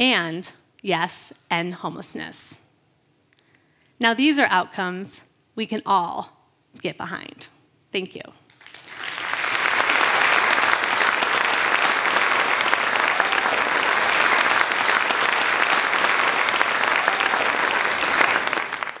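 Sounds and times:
audience applauding: 8.5 - 19.0.

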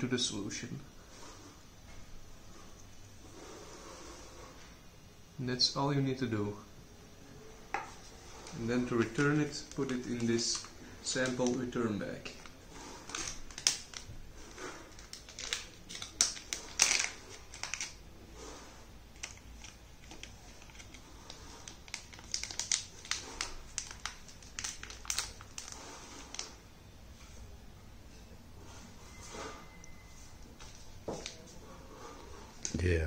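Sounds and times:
plastic bag crinkling: 8.0 - 18.1, 19.1 - 26.6.

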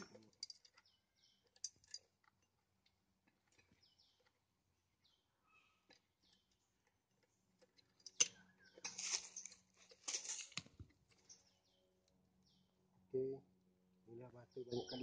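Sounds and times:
faint bird chirps: 5.0 - 6.6, 14.1 - 15.0
scraping rustles: 8.8 - 11.2.

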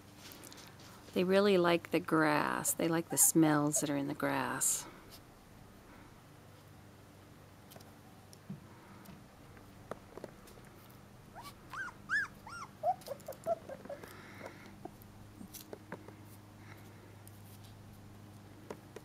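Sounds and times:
puppy whimpering: 3.0 - 4.1, 11.3 - 14.6.

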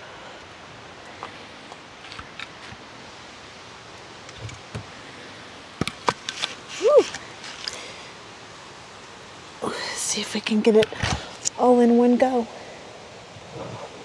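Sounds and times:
rustling: 6.0 - 8.0.

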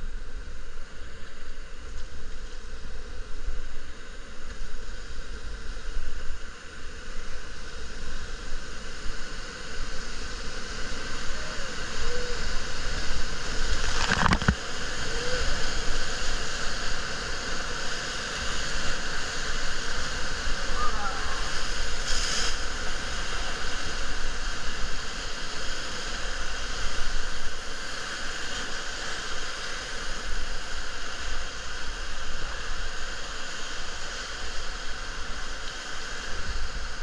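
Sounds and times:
whitewater rapid rushing: 9.5 - 37.0.

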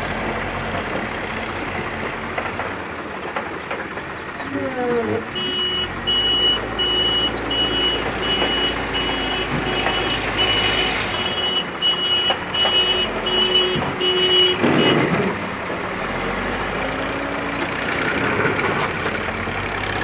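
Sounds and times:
diesel engine running: 0.0 - 20.0
reversing alarm beeping: 5.3 - 15.5.

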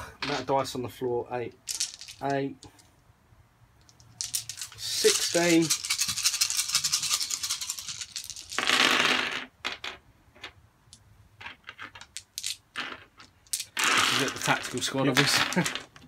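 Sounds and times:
dice thrown onto a table: 0.2 - 0.5, 1.7 - 2.7, 3.9 - 6.2, 7.9 - 10.6, 11.4 - 16.0
dice rattling in a hand: 1.5 - 2.6, 3.8 - 10.6, 11.4 - 16.0
dice clicking: 1.5 - 2.8, 3.8 - 16.0.

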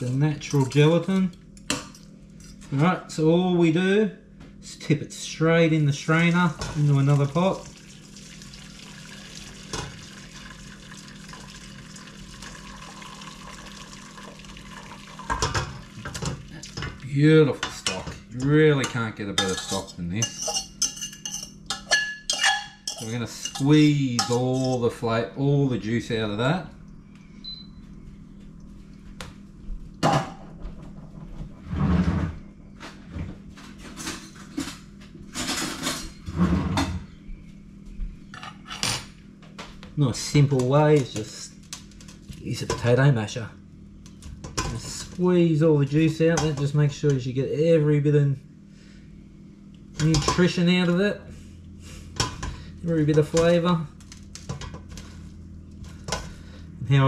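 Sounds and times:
liquid pouring through strainer: 7.1 - 16.8
pot and strainer clanking: 17.6 - 24.8
metal kitchenware clinking: 17.6 - 24.9.

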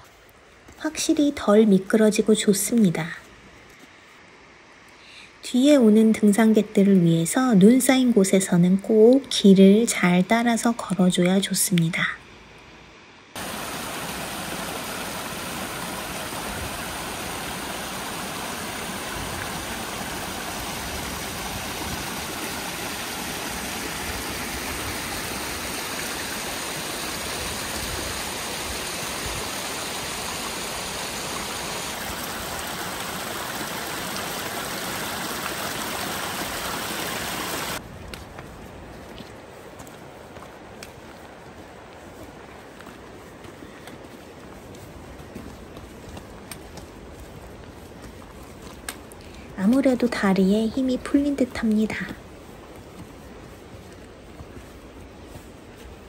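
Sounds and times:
mountain stream water rushing: 13.0 - 56.0.

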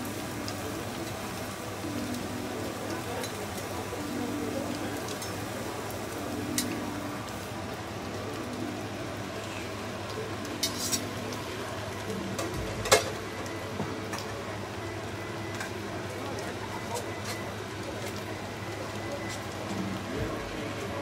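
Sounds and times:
crepe batter hissing: 0.0 - 21.0.

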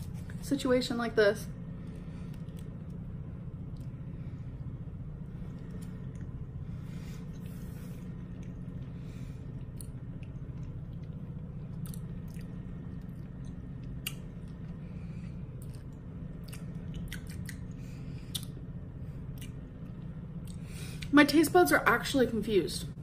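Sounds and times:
steady low hum: 0.0 - 23.0
person chewing candy: 9.5 - 18.6.

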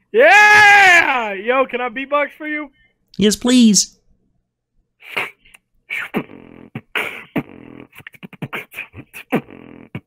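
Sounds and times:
person beatboxing: 5.1 - 10.0.

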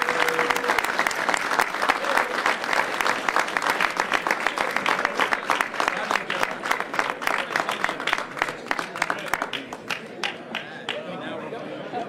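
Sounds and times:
crowd clapping: 0.0 - 11.2
murmur of voices: 3.7 - 12.0.

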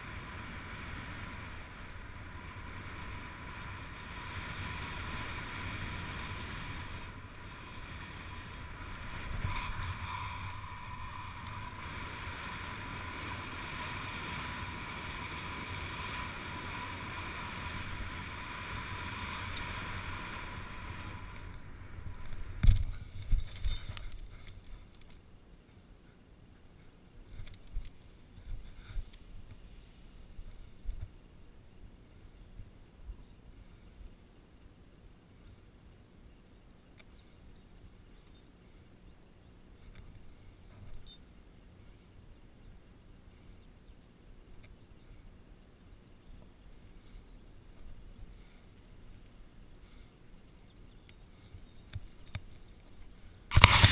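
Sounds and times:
wind rushing over helmet camera: 0.0 - 25.1, 46.9 - 53.9
thin steady whine: 0.0 - 53.9.

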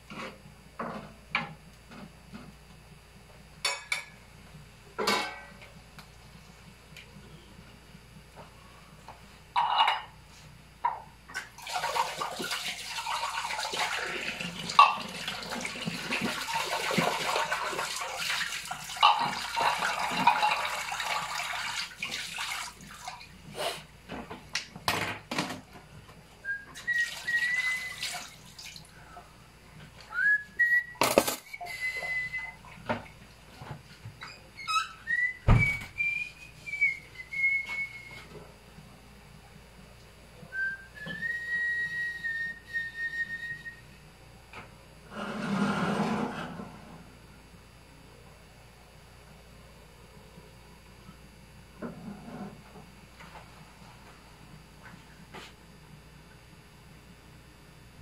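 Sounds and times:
tap water running into sink: 11.5 - 23.2
person whistling a tune: 26.4 - 28.1, 30.1 - 32.6, 35.0 - 38.3, 40.5 - 43.8.

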